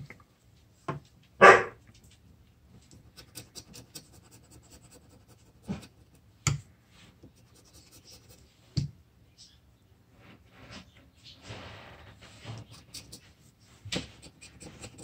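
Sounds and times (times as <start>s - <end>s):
knife blade scraping scratch ticket: 3.1s - 6.2s, 12.5s - 13.4s, 14.0s - 15.0s.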